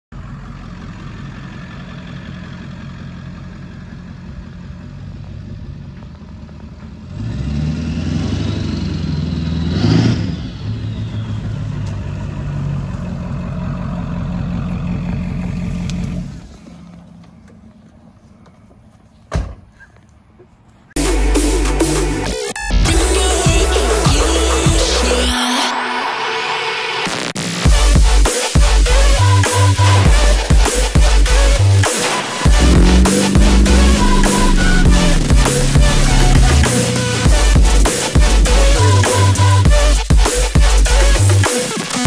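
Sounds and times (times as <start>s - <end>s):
diesel truck engine driving: 0.1s - 19.3s, 20.1s - 42.0s
sharp thump: 19.3s - 19.7s.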